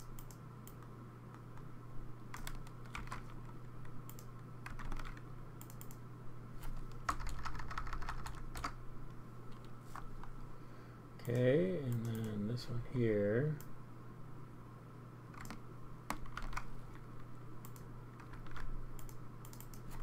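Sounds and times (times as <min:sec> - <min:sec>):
low electrical hum: 0:00.0 - 0:20.0
computer keyboard typing: 0:02.3 - 0:06.0, 0:06.8 - 0:08.8, 0:15.3 - 0:16.7, 0:17.6 - 0:20.0.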